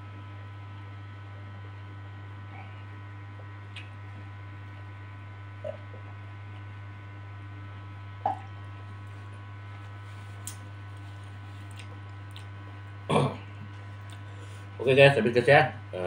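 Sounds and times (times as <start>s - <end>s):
low electrical hum: 0.0s - 16.0s
faint mouth noises: 5.6s - 6.3s, 8.2s - 8.5s.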